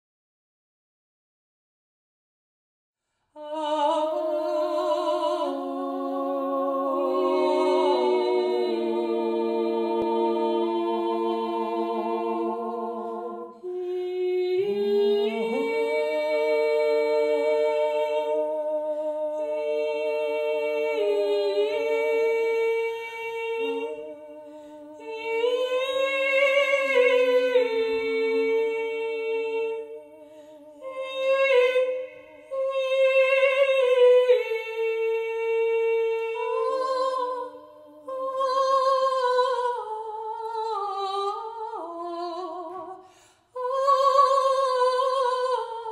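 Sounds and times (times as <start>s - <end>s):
women singing in harmony: 3.4s - 45.9s.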